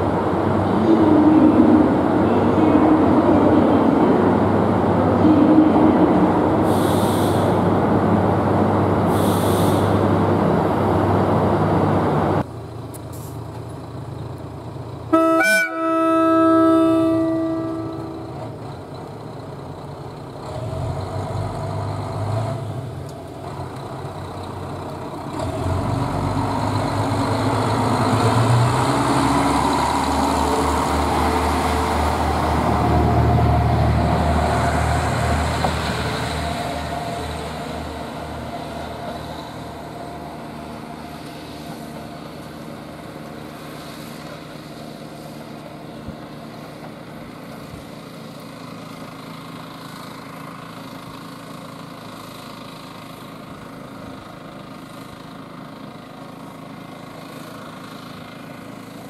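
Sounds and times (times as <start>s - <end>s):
diesel railcar engine running: 0.0s - 59.0s
train horn blast: 15.1s - 18.6s.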